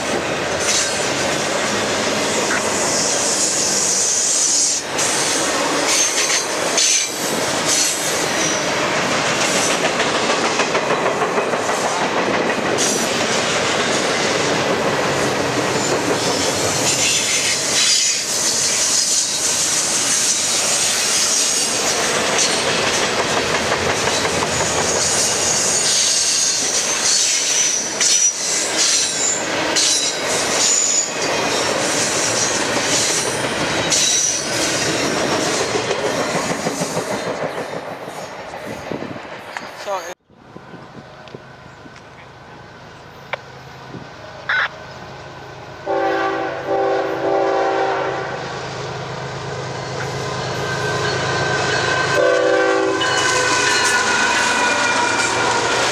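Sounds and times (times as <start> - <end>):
freight train wheels rumbling: 0.0 - 55.9
high wheel squeal: 15.8 - 22.8, 24.2 - 37.1, 50.2 - 55.9.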